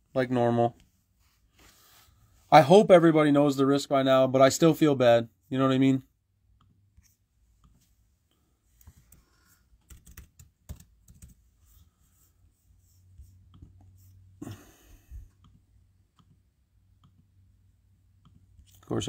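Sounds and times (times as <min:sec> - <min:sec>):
laptop keyboard typing: 0:08.8 - 0:11.4.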